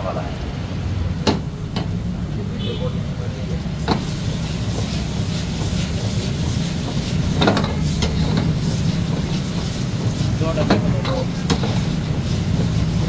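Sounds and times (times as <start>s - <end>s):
gas burner rushing: 0.0s - 13.0s
chicken sizzling in a wok: 3.0s - 13.0s
metal ladle scraping wok: 4.0s - 13.0s.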